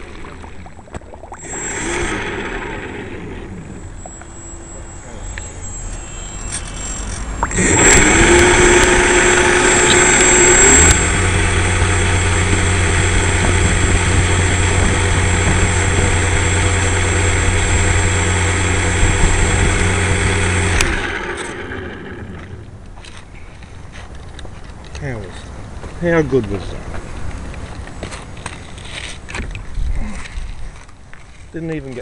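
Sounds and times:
electric motor and propeller whine: 0.0 - 22.8.

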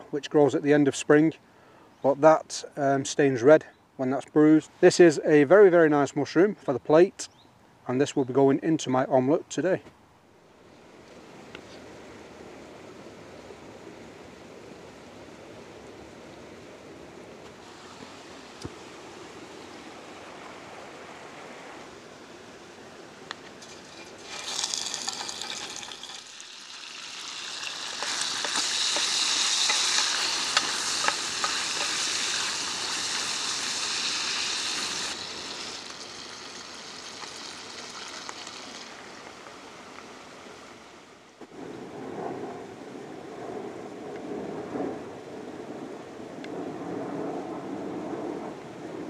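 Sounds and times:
bacon sizzling in a metal tin: 23.6 - 39.3.

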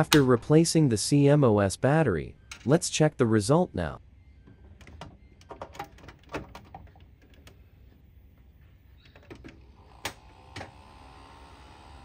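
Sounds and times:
cooler fan whine: 7.2 - 12.0.

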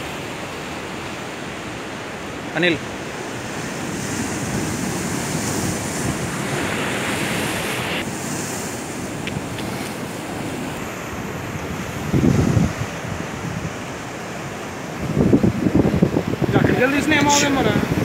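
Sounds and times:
sea waves breaking on rocks: 0.0 - 18.0
wind buffeting microphone: 3.2 - 18.0.

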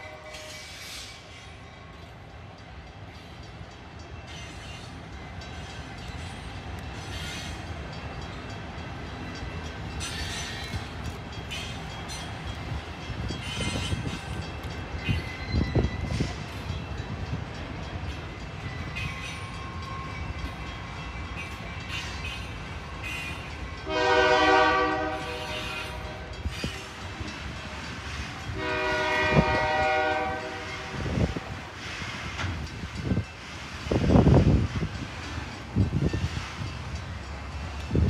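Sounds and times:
train clattering on rails: 0.0 - 38.0
locomotive air horn blasts: 23.8 - 26.3, 28.5 - 31.1.

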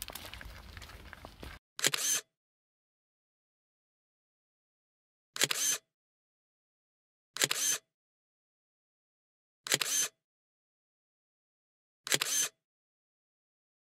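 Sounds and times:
camera shutter double click: 5.4 - 5.8, 7.4 - 7.8, 9.7 - 10.2, 12.1 - 12.6.

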